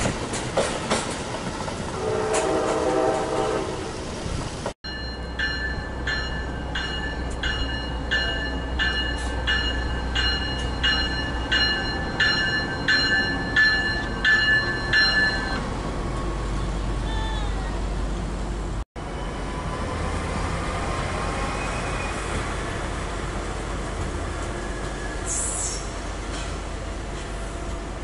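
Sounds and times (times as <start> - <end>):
train warning bell dinging: 4.8 - 15.7.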